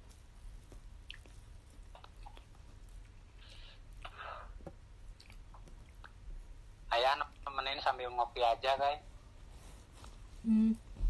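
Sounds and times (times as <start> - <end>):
close-up chewing: 0.0 - 4.1, 5.1 - 6.2
wet mouth clicks: 5.2 - 6.2.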